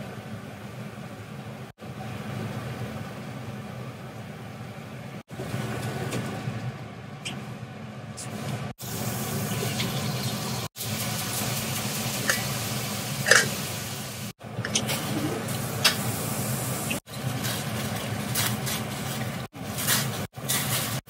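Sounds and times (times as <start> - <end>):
gas burner flame hissing: 8.2 - 18.8.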